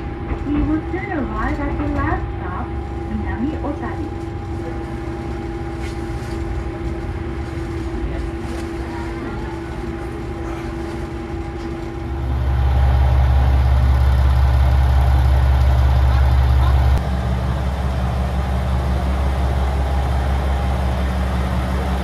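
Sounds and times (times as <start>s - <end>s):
diesel railcar engine idling: 0.0s - 22.0s.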